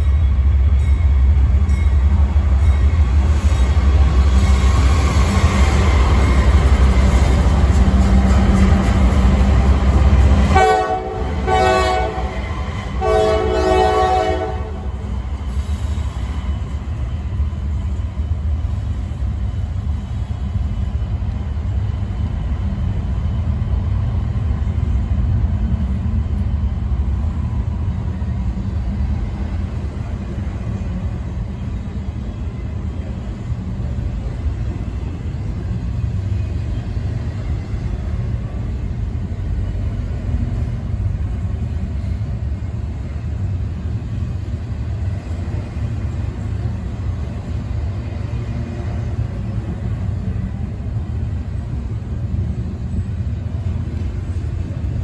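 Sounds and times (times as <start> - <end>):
freight train rumbling past: 0.0 - 55.0
locomotive horn blasts: 10.5 - 12.4, 13.0 - 15.0.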